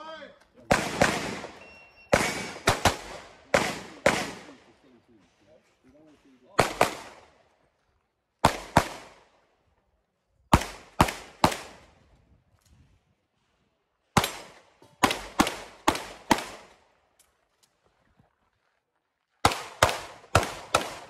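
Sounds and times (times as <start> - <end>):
pistol shots echoing: 0.6 - 4.7, 6.6 - 7.4, 8.4 - 9.3, 10.5 - 11.9, 14.2 - 16.9, 19.4 - 21.0.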